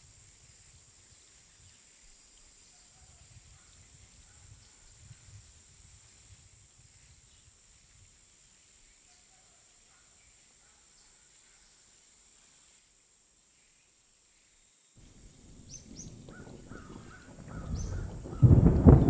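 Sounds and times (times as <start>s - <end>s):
thin high-pitched hiss: 0.0s - 17.9s
soft low rumble: 15.0s - 19.0s.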